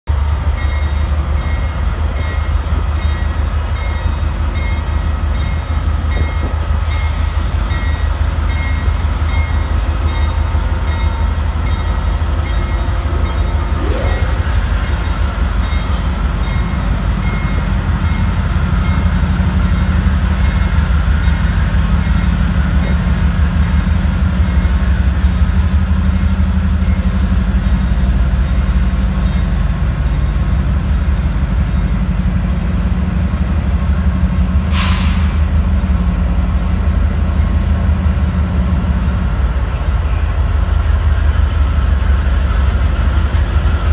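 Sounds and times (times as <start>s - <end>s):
short hiss: 34.7s - 35.4s.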